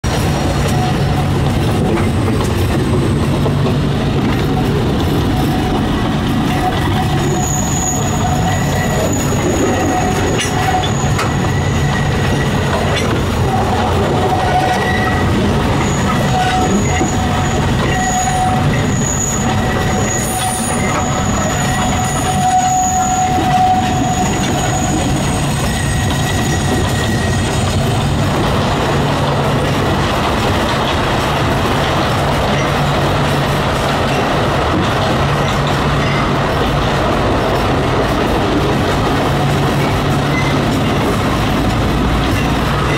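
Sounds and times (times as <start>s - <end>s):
wheels rumbling on track: 0.0s - 42.9s
train wheels squealing: 4.4s - 29.2s, 35.2s - 42.9s.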